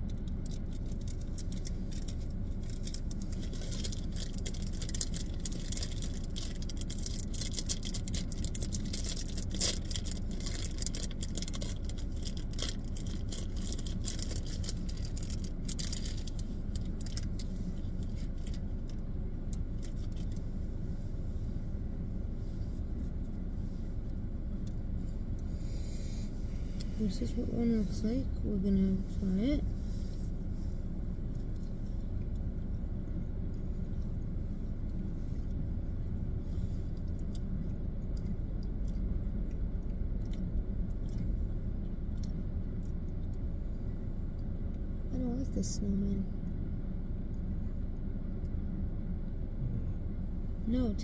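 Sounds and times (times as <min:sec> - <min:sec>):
candy packaging crackling: 0:00.0 - 0:19.0
low rumble inside car: 0:00.0 - 0:51.0.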